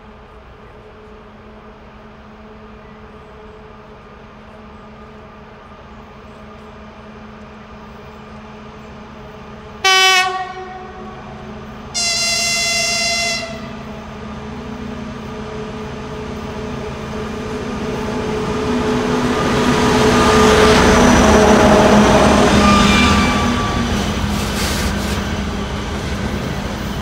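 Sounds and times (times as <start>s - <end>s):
freight train rolling: 0.0s - 27.0s
locomotive engine hum: 0.0s - 27.0s
locomotive horn blasts: 9.8s - 13.9s, 22.0s - 24.2s.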